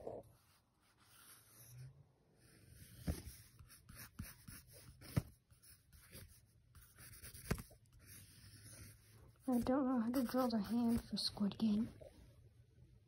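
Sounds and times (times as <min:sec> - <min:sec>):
pencil scratching on paper: 0:00.0 - 0:01.9, 0:02.5 - 0:11.6.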